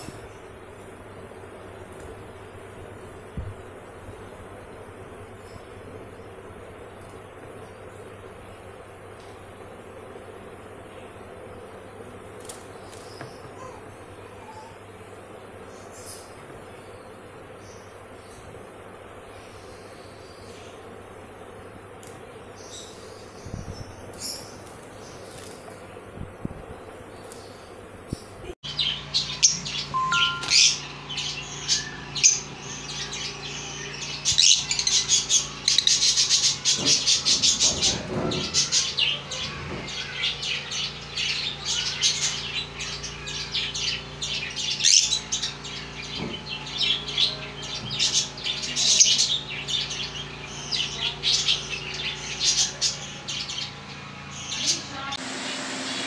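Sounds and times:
lovebirds chattering: 10.5 - 26.1, 26.8 - 55.2.

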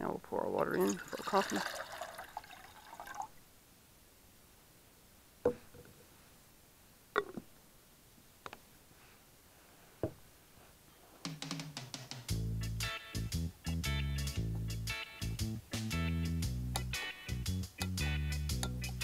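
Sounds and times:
music: 11.2 - 19.0.

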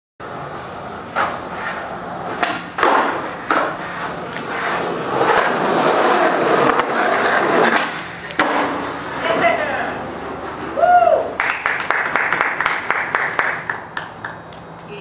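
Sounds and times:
skateboard wheels rolling on concrete: 0.2 - 15.0
skateboard knocks: 7.6 - 9.5.

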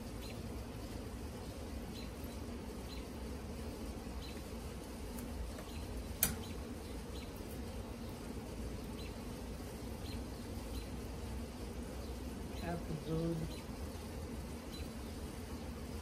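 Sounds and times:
honey bees buzzing: 0.0 - 16.0
sharp click: 6.2 - 6.5.

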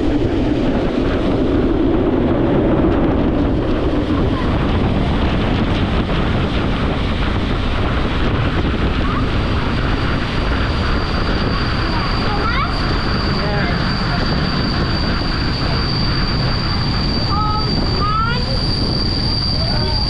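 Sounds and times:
train wheels rushing on rails: 0.0 - 20.0
thin high whine: 7.9 - 20.0.

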